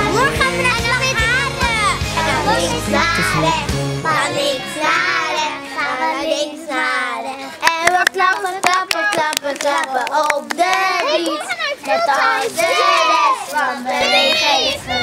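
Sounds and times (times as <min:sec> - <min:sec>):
children singing: 0:00.0 - 0:07.4, 0:10.5 - 0:15.0
hand claps: 0:07.7 - 0:11.4.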